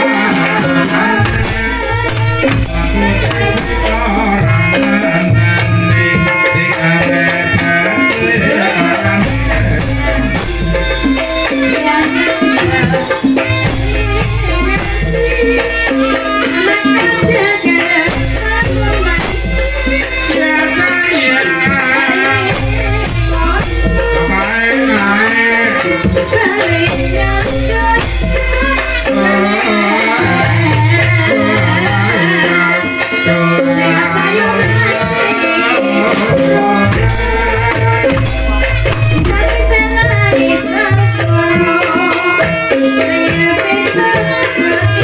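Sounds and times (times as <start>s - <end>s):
gamelan music: 0.0s - 45.0s
hand drums: 0.0s - 45.0s
deep booming and bright rattle: 37.0s - 41.4s.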